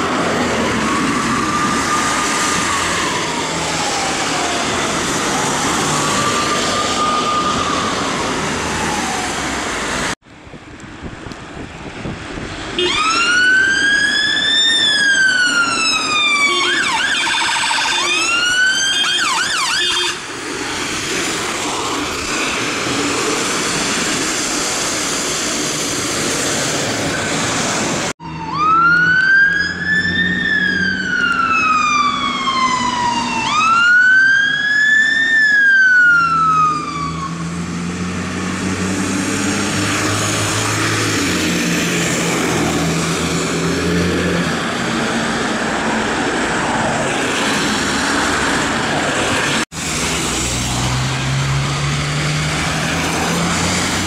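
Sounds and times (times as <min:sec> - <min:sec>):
emergency vehicle siren wailing: 0:00.0 - 0:10.2, 0:12.8 - 0:54.0
traffic noise: 0:00.0 - 0:54.0
siren rapid yelp: 0:00.6 - 0:09.8, 0:12.8 - 0:20.3, 0:28.2 - 0:37.5.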